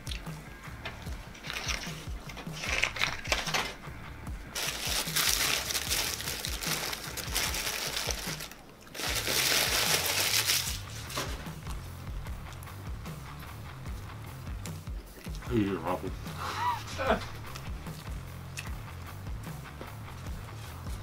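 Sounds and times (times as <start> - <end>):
background music with bassline: 0.0 - 21.0
paper wrapper crinkling: 1.3 - 3.8, 4.6 - 11.3.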